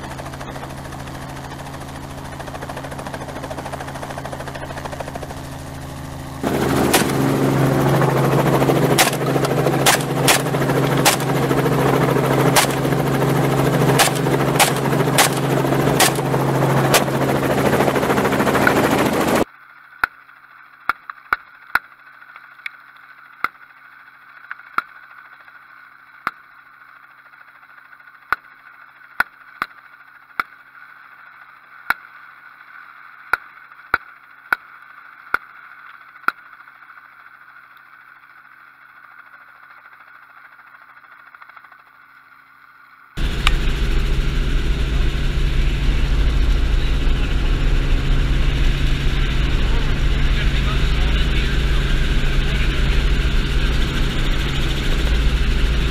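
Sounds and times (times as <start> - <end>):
helicopter rotor and engine: 0.0 - 19.5, 36.1 - 42.0, 43.2 - 55.9
shotgun firing: 6.4 - 7.6, 8.9 - 11.6, 12.5 - 13.1, 13.9 - 17.3.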